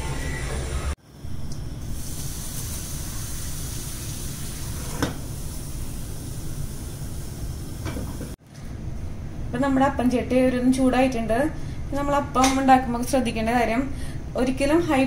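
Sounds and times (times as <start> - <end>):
gas burner running: 0.0 - 8.4.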